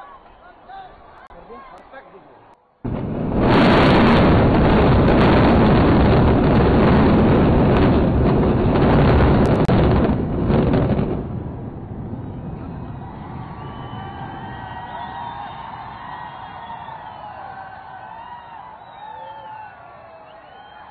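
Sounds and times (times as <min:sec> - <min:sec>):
crackling explosive blast: 0:02.8 - 0:19.0
building collapse rumble: 0:02.8 - 0:20.9.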